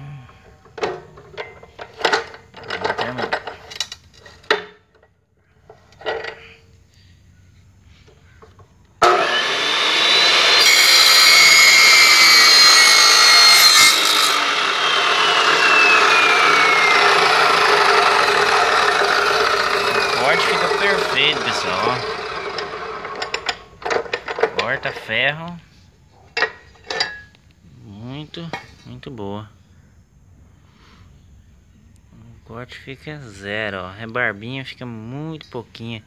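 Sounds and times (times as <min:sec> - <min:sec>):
saw whine falling in pitch: 0:09.0 - 0:23.3
chop saw cutting steel tube: 0:09.0 - 0:24.9.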